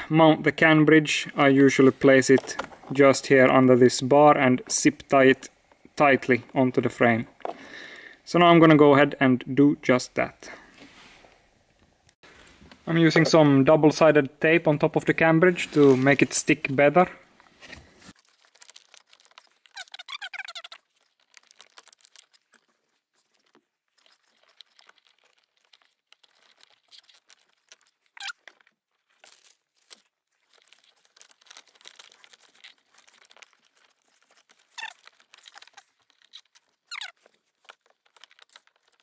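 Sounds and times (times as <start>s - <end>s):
rustling: 15.5s - 16.8s, 17.4s - 39.0s.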